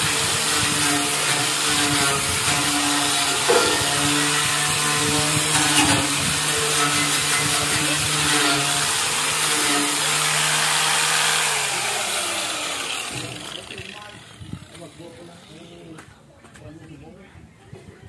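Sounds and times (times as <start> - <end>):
rough scraping on rusty metal: 0.0 - 14.1
power tool motor whine: 0.0 - 14.8.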